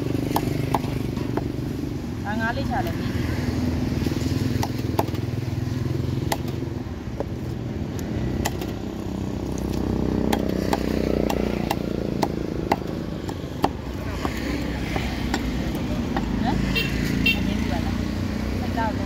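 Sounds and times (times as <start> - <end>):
cleaver chopping fish on wood: 0.0 - 1.6, 4.4 - 8.9, 9.5 - 16.4
engine rumbling: 0.0 - 19.0.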